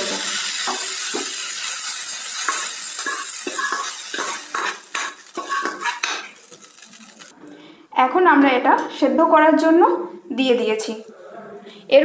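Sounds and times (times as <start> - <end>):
sizzling hiss: 0.0 - 7.3
metal spoon scraping a pan: 0.0 - 7.4.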